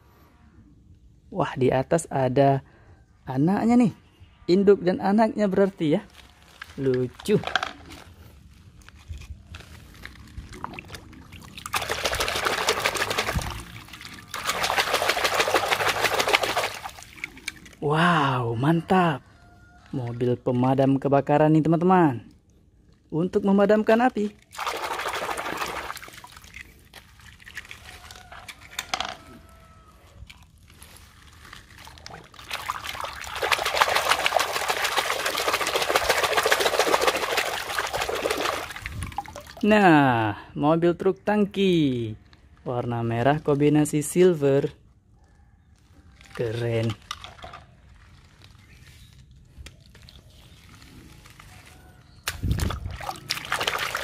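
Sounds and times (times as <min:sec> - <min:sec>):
water splashing in metal basin: 0:10.6 - 0:17.8, 0:24.4 - 0:28.3, 0:31.8 - 0:39.7, 0:52.3 - 0:54.0.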